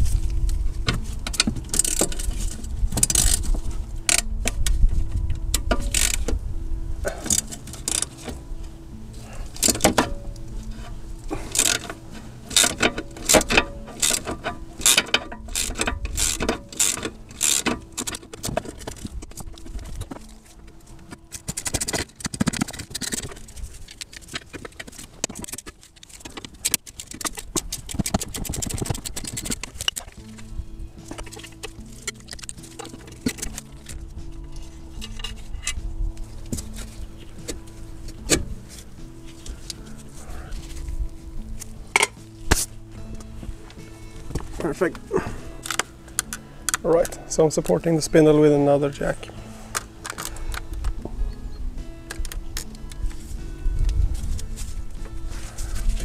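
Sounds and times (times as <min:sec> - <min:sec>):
ratchet wrench clicking: 0:01.4 - 0:03.5, 0:05.6 - 0:06.3, 0:07.2 - 0:08.3, 0:11.5 - 0:19.2, 0:45.6 - 0:46.8.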